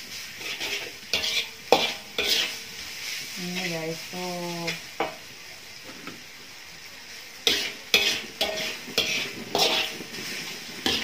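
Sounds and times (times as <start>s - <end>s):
metal spatula scraping a wok: 0.0s - 5.2s, 7.4s - 11.0s
frying sizzle: 0.0s - 11.0s.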